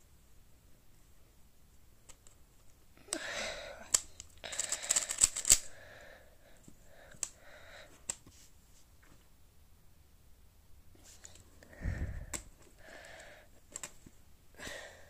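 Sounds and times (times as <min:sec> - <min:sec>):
speed cube turning clicks: 0:03.9 - 0:05.8, 0:07.1 - 0:07.4, 0:12.3 - 0:14.0.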